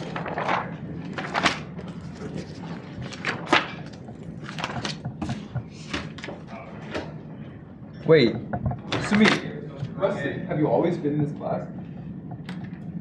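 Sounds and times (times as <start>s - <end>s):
paper rustling: 0.0s - 6.6s
low room hum: 0.0s - 13.0s.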